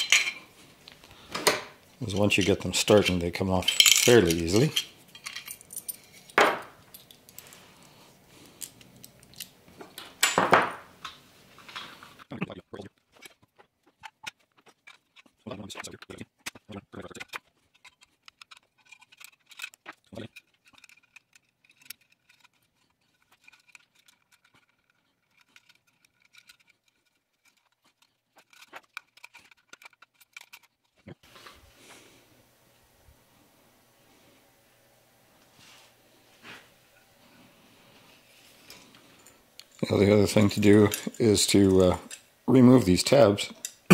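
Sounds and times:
sheet-metal parts clinking: 0:01.4 - 0:07.4
screws clicking and scraping: 0:12.9 - 0:31.1.

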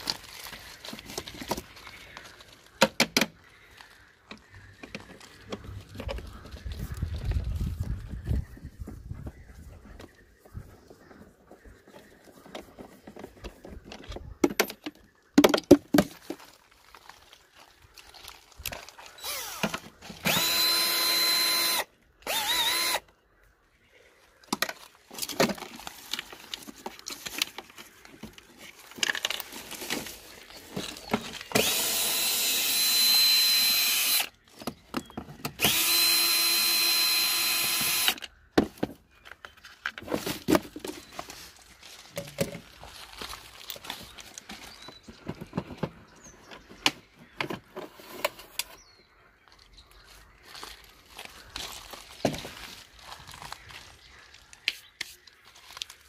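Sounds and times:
cordless drill whining: 0:19.2 - 0:23.1, 0:31.3 - 0:34.4, 0:35.5 - 0:38.3.

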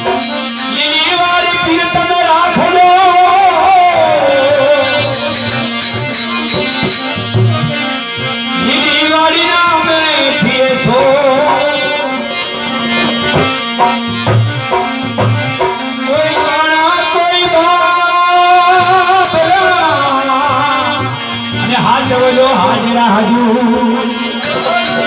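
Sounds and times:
man singing into microphone: 0:00.0 - 0:13.3, 0:14.7 - 0:25.0
harmonium: 0:00.0 - 0:25.0
drum beat: 0:04.5 - 0:07.8, 0:13.2 - 0:16.6, 0:23.4 - 0:25.0.

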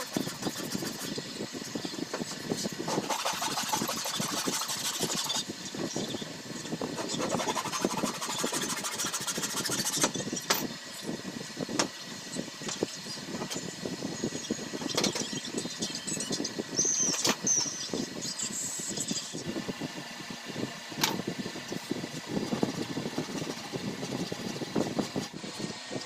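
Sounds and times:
hacksaw blade sawing wood: 0:00.0 - 0:01.1, 0:02.9 - 0:05.4, 0:07.0 - 0:10.2.

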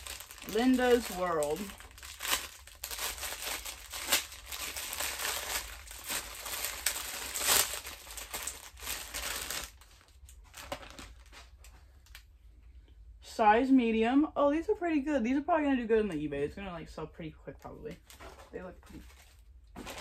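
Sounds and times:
plastic packaging crinkling: 0:00.0 - 0:12.3, 0:17.9 - 0:20.0.

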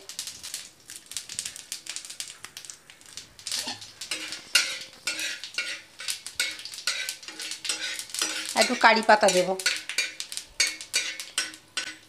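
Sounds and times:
seeds popping in hot oil: 0:00.0 - 0:12.0
metal spatula scraping pan: 0:03.6 - 0:12.0.

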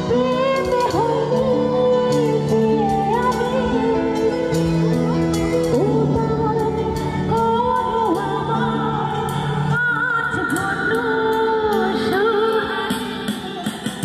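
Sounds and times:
woman singing into microphone: 0:00.0 - 0:14.0
electronic drum pad percussion: 0:12.5 - 0:14.0.

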